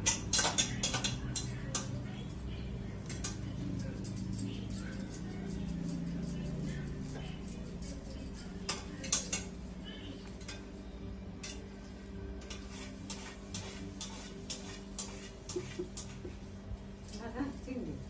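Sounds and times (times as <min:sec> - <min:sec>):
spoon clicking and scraping pot: 0:00.0 - 0:02.0, 0:08.6 - 0:09.6, 0:12.4 - 0:16.3
steady low hum: 0:00.0 - 0:18.0.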